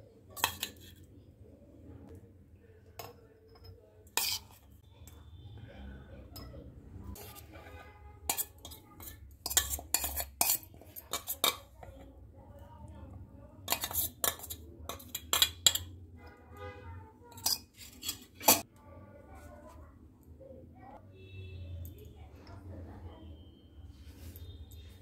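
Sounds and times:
utensils clinking against dishes: 0.3 - 1.0, 3.0 - 4.6, 8.3 - 11.9, 13.7 - 16.0, 17.3 - 18.7.

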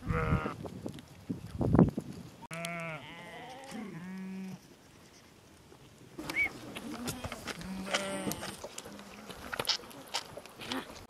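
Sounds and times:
sheep and goats bleating: 0.0 - 0.6, 2.5 - 4.6, 6.8 - 9.5.

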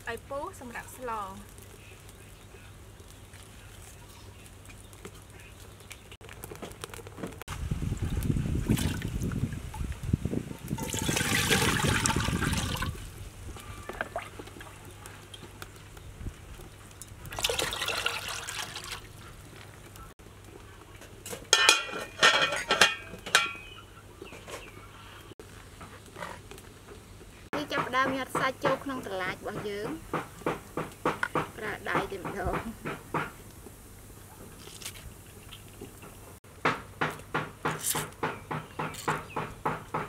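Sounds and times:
water pouring into metal pot: 8.6 - 9.9, 10.7 - 13.1, 17.2 - 19.2
metal lid clanking on pot: 21.3 - 23.8.

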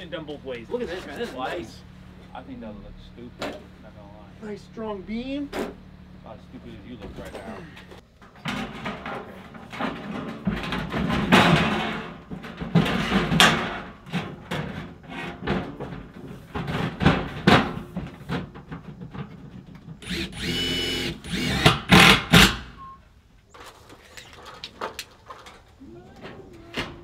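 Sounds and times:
high-pitched drill whine: 20.0 - 22.4
power drill bursts: 20.0 - 22.8.

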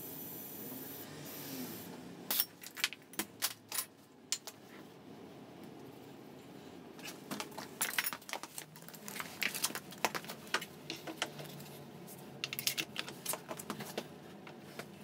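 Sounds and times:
metal tools clinking on concrete: 7.6 - 11.6, 12.4 - 13.5.

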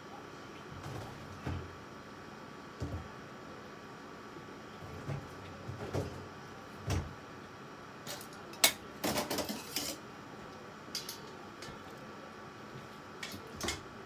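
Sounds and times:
dishes and utensils clattering: 8.1 - 10.0.

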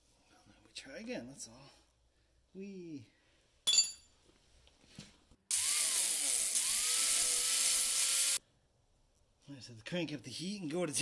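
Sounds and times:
welding arc hissing: 5.6 - 8.4.

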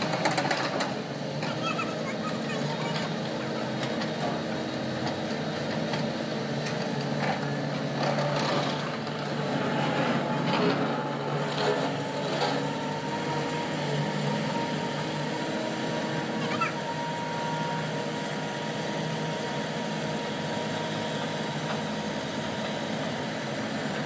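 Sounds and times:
machinery clatter: 0.0 - 13.2
diesel engine drone: 0.0 - 24.0.

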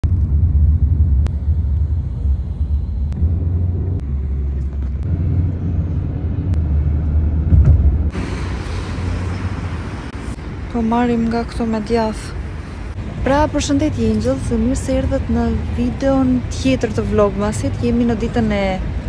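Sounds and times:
road rumble inside moving car: 0.0 - 19.0
street noise hiss: 8.1 - 19.0.

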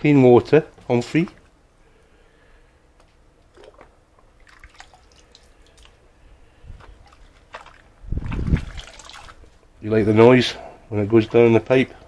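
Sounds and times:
small splashes: 3.4 - 9.7
water dripping and sloshing: 3.4 - 9.8.

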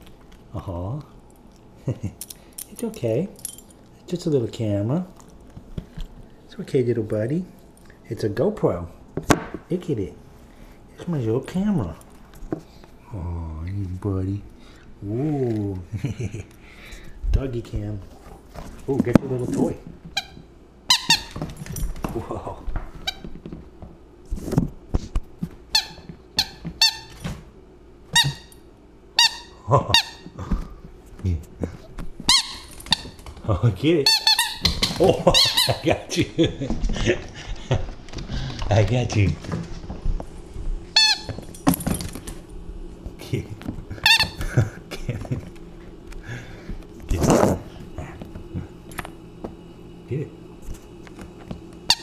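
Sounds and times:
squeaky dog toy squeaking: 20.9 - 21.4, 29.2 - 30.2, 32.3 - 33.1, 34.0 - 34.8, 35.4 - 35.8.

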